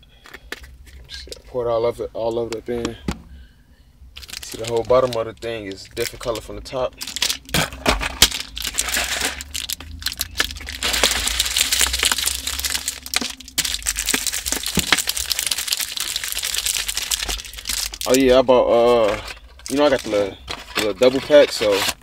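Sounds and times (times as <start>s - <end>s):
plastic bottle crackling: 4.2s - 22.0s.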